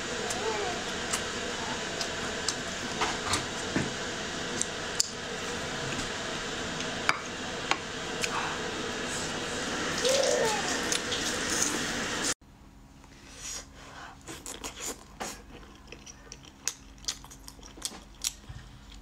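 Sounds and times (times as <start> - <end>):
chewing and mouth sounds: 14.2 - 19.0.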